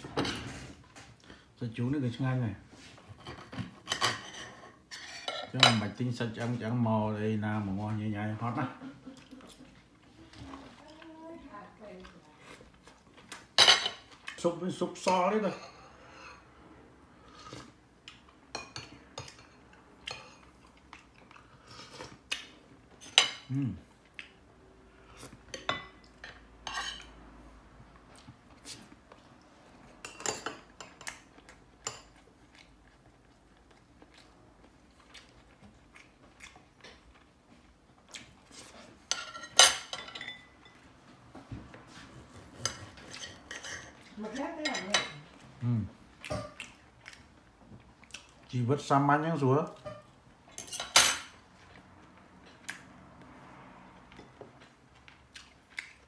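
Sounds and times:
cutlery clinking on plates: 25.5s - 27.1s, 39.1s - 40.8s, 49.8s - 51.4s.

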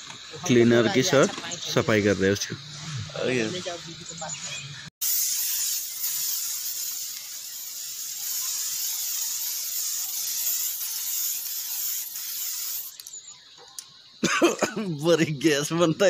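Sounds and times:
aerosol spray can hissing: 5.0s - 13.2s.

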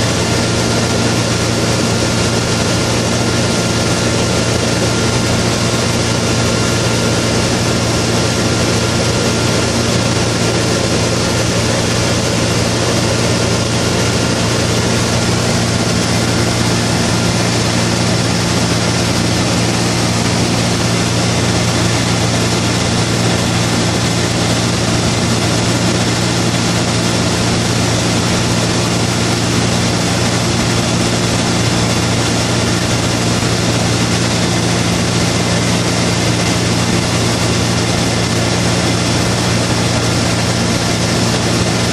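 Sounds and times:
plane engine and propeller drone: 0.0s - 41.9s.

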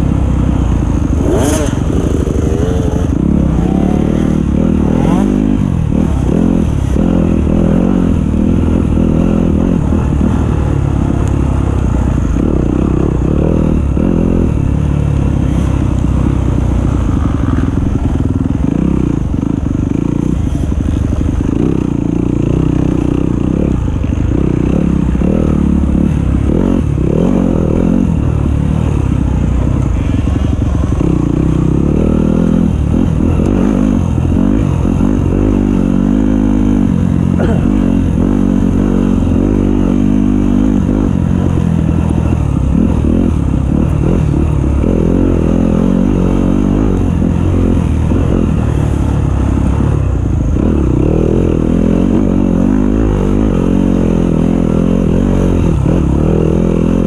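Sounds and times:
dirt bike engine revving: 0.9s - 11.1s.

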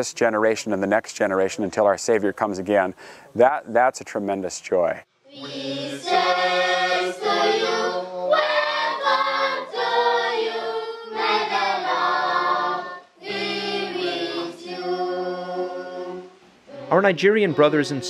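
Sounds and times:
small mixed choir singing: 5.3s - 18.0s.

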